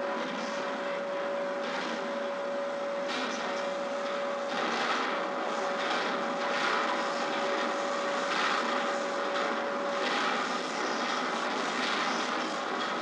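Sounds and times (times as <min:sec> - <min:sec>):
drop-forge industrial noise: 0:00.0 - 0:13.0.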